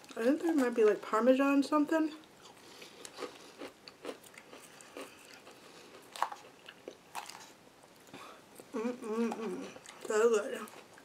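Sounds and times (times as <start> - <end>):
person chewing crunchy salad: 2.2 - 11.0.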